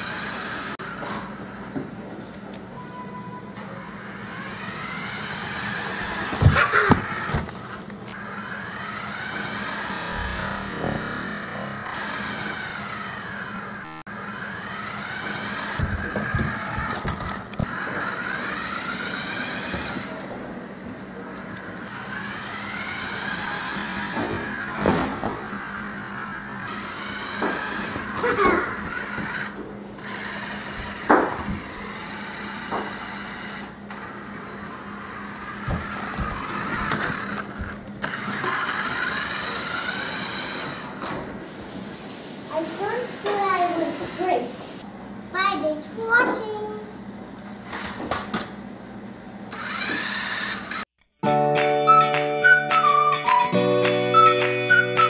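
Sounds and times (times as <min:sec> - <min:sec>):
electric motor whining: 0:00.0 - 0:01.8, 0:03.2 - 0:44.8, 0:49.4 - 0:51.0
knocks and thumps: 0:15.8 - 0:17.7.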